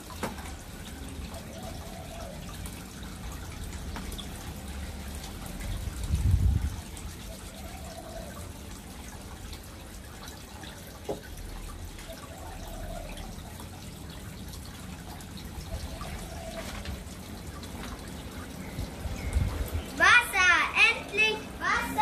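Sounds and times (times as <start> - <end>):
small water splashes: 0.0 - 22.0
water trickling and dripping: 0.0 - 22.0.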